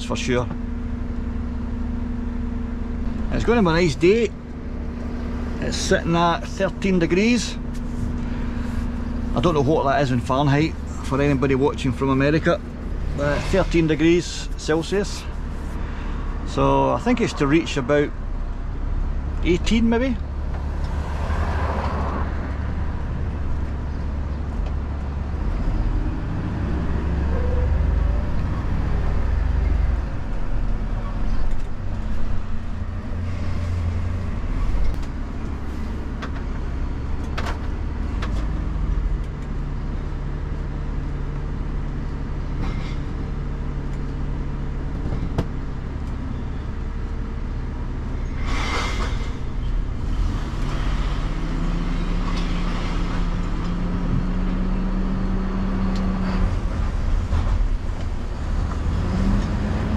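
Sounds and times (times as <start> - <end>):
truck diesel engine running: 0.0 - 59.9
short loud hiss: 48.4 - 49.4.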